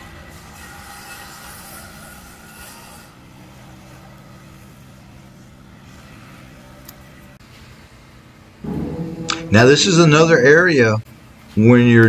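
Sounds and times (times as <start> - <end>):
steady low hum: 8.0 - 10.9.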